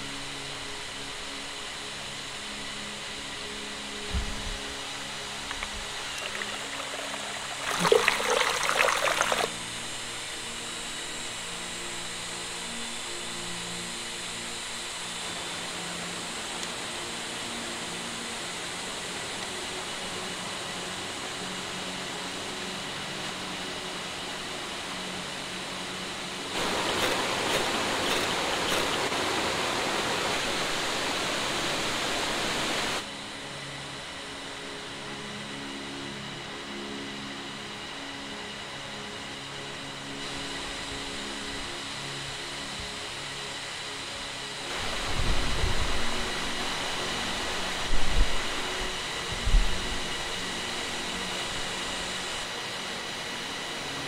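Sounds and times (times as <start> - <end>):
steady background hiss: 0.0 - 54.0
water splashing into bamboo: 5.5 - 9.5
stream rushing: 5.5 - 9.6, 26.5 - 33.0.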